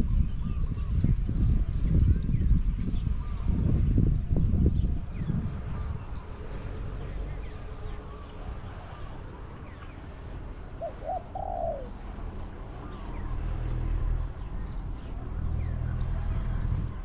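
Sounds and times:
small birds chirping: 0.0 - 16.2
dove cooing: 10.6 - 12.0.

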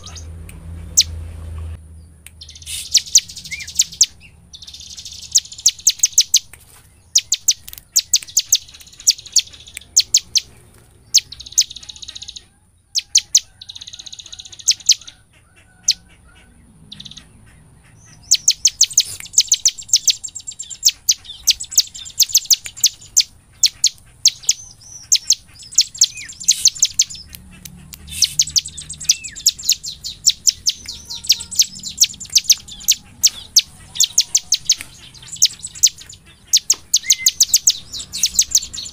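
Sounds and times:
bird singing high chirps: 0.0 - 0.3, 2.0 - 15.2, 16.8 - 38.9
buzzy bird trills: 0.0 - 1.2, 2.4 - 38.9.

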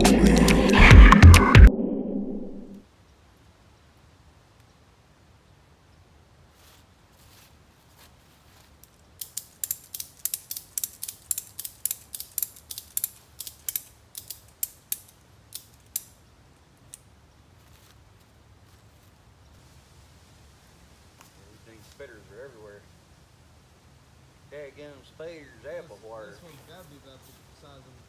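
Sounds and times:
ratchet clicking: 9.2 - 16.1.

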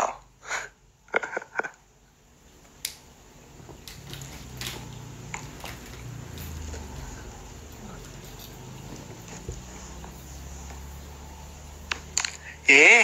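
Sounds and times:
smartphone handling clicks and rustling: 11.9 - 12.4.

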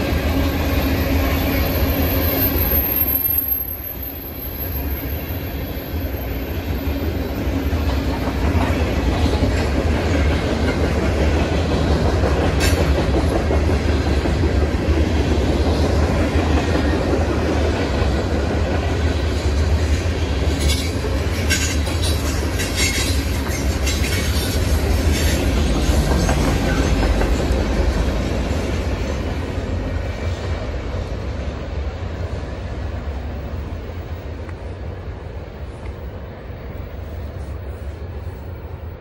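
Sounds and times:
freight train rumble: 0.0 - 39.0
wheels clattering over rail joints: 7.8 - 29.3.

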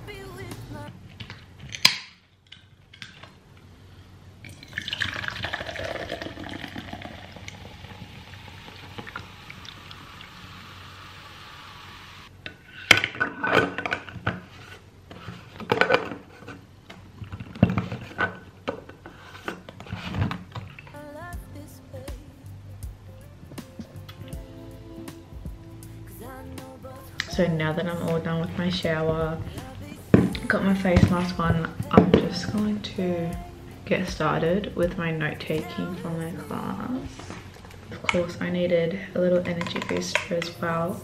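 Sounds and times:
fizzy drink pouring: 4.5 - 12.2.

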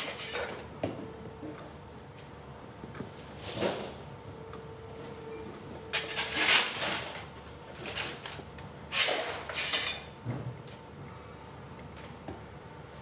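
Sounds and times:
metal parts clattering and scraping: 6.0 - 7.2, 8.9 - 10.1.

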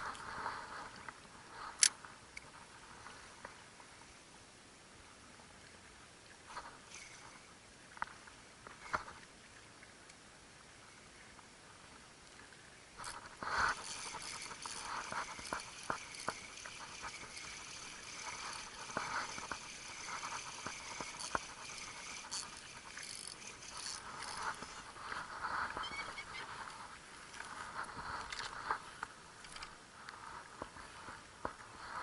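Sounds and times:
fishing reel whirring: 6.6 - 7.5, 13.0 - 26.9, 29.4 - 31.2.

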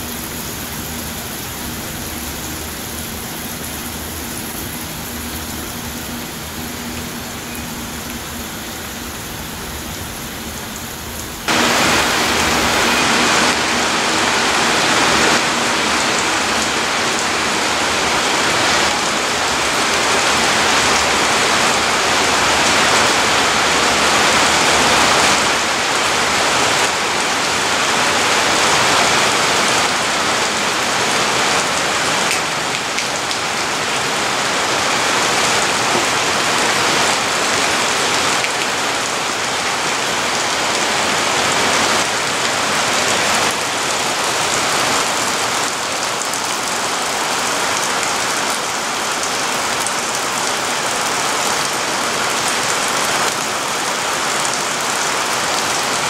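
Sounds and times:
heavy rain: 0.0 - 56.0.

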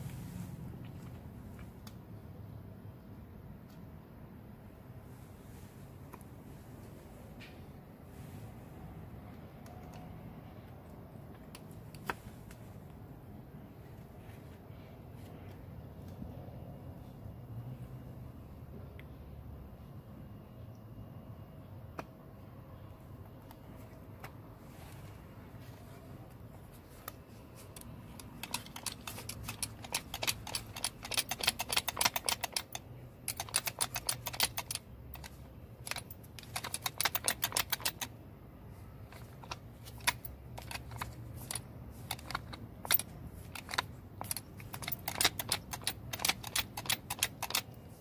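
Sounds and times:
ratcheting clutch clicks: 27.8 - 38.1, 39.0 - 47.8.

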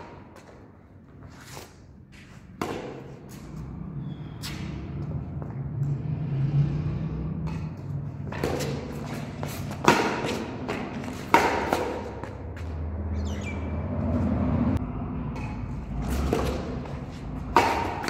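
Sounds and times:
rackets hitting shuttlecock: 2.4 - 3.6, 7.3 - 13.4, 15.3 - 18.0.

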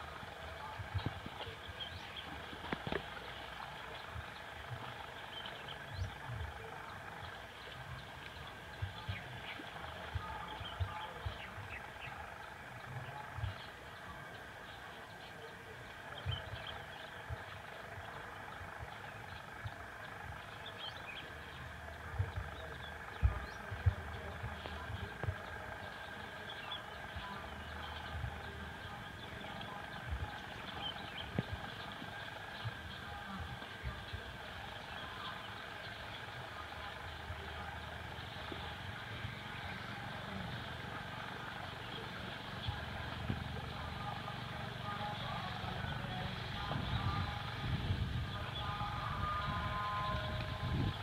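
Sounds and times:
soft low thumps: 16.2 - 34.7.

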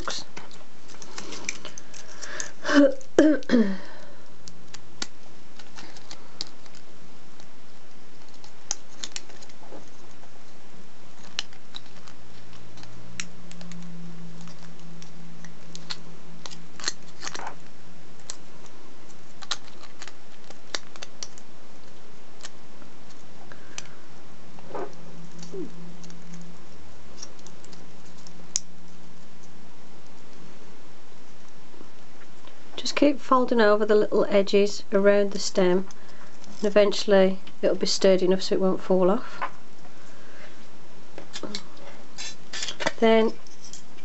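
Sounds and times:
foil crinkling: 3.8 - 10.3, 15.6 - 23.9.

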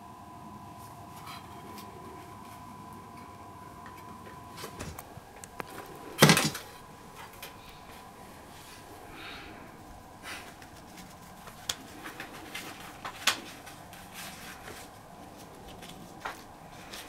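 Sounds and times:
paper cards rustling: 10.3 - 17.0.

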